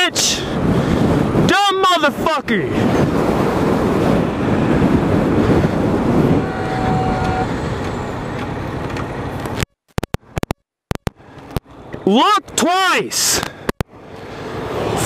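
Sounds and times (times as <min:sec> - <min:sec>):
wind rush: 0:00.0 - 0:09.6
motorcycle engine and road noise: 0:00.0 - 0:15.0.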